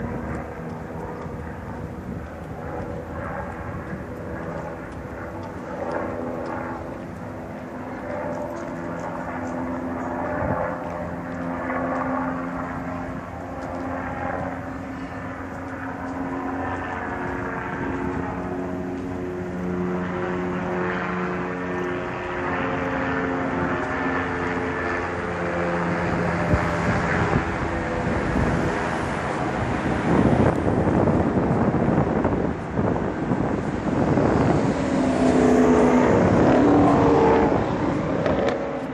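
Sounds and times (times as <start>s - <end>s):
helicopter engine and rotor drone: 0.0s - 38.9s
held tones drifting in pitch: 33.5s - 38.9s.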